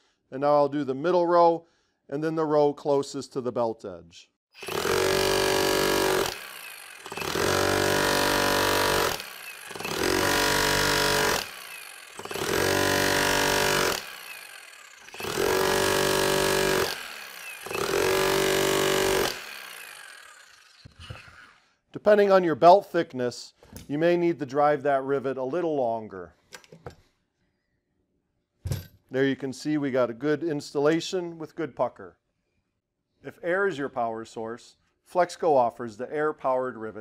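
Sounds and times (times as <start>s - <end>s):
electric rivet driver hammering: 4.6s - 21.4s.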